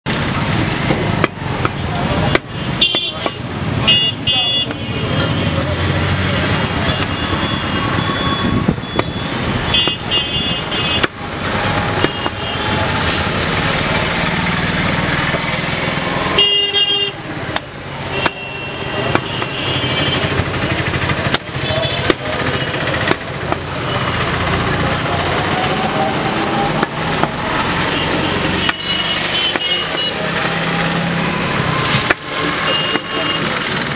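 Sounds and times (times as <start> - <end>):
street traffic with motorcycles: 0.0 - 33.9
cleaver chopping on wooden block: 0.9 - 3.4, 9.0 - 9.2, 9.8 - 10.1, 11.0 - 11.2, 12.0 - 12.4, 17.6 - 18.4, 19.0 - 19.5, 21.1 - 22.4, 23.0 - 23.7, 28.6 - 30.2
vehicle horns honking: 2.2 - 5.6, 6.5 - 13.3, 16.1 - 23.1, 27.5 - 30.4, 32.6 - 33.7.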